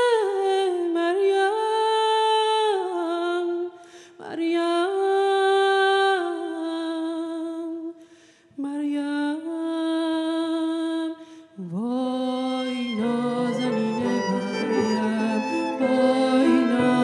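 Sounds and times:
choir singing slow song: 11.7s - 17.0s.

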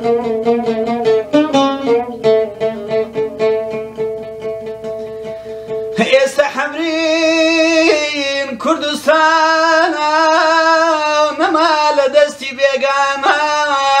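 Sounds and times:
oud plucking: 0.0s - 14.0s
man singing: 5.9s - 14.0s.

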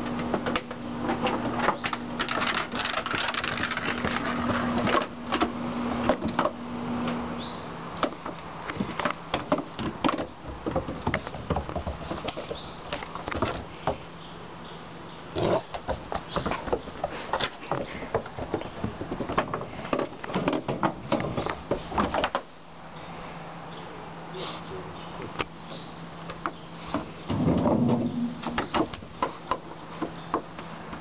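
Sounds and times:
dog paws clattering on wooden deck: 0.0s - 6.6s, 8.0s - 14.0s, 15.6s - 22.5s.

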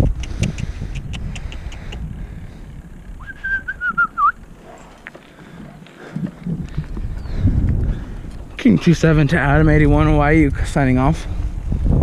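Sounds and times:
wind on microphone: 0.0s - 12.0s
person whistling: 3.2s - 4.4s.

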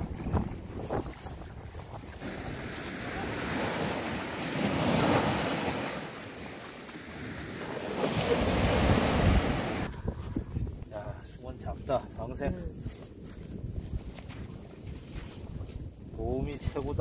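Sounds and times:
sea waves breaking on shore: 0.0s - 9.9s
wind rumbling on microphone: 0.0s - 17.0s.

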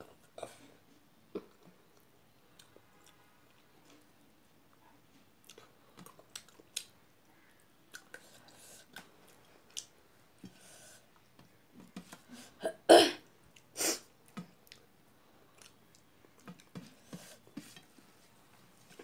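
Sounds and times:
person chewing with lip smacks: 5.4s - 6.9s.

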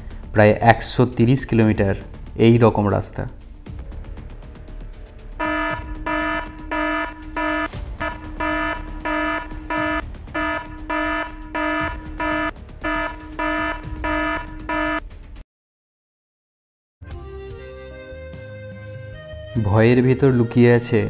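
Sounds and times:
electronic alarm beeping: 5.4s - 15.0s.

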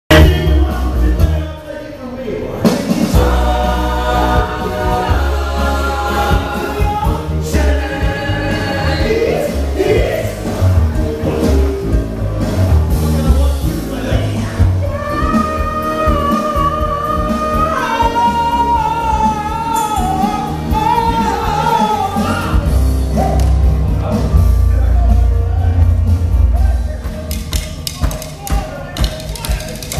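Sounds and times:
men singing: 0.1s - 12.4s, 13.0s - 24.6s
heavy beat: 2.6s - 29.9s.

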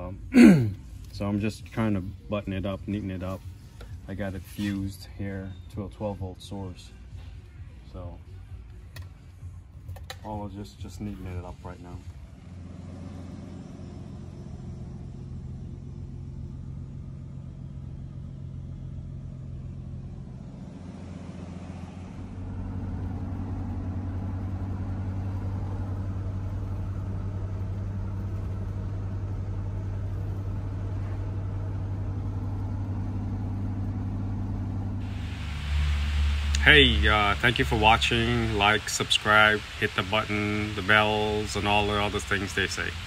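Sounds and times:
road noise: 11.0s - 43.0s
car engine droning: 11.1s - 43.0s.

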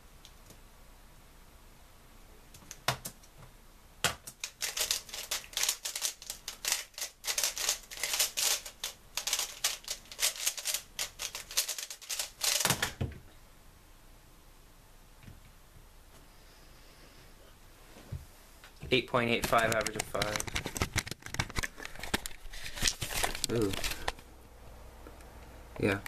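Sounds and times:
puzzle cube plastic clacks: 4.3s - 13.0s, 19.4s - 24.2s.

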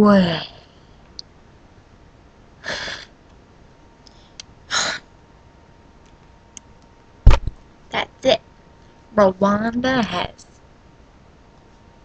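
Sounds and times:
person breathy vocal sounds: 2.6s - 3.1s
loud thump: 7.3s - 7.6s.

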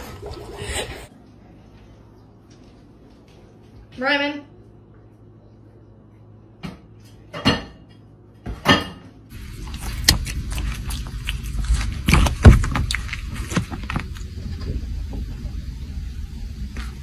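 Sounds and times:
dishes clattering in a sink: 6.6s - 9.2s
dog gnawing a hard chew toy: 9.4s - 14.3s.

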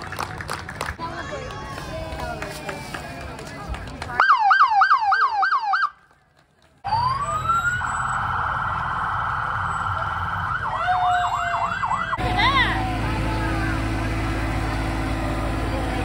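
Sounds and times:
siren yelp: 4.2s - 6.0s, 6.9s - 13.0s
engine rumbling: 6.0s - 16.0s
siren wailing: 6.9s - 13.4s.

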